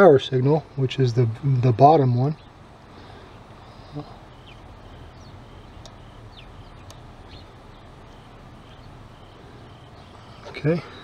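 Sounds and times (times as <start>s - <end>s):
high bird chirps: 2.3s - 11.0s.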